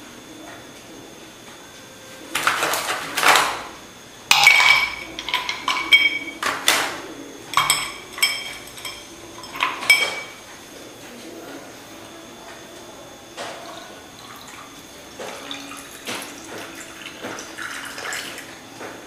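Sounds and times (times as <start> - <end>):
ice cubes clinking into glass: 4.3 - 6.6, 7.5 - 10.4.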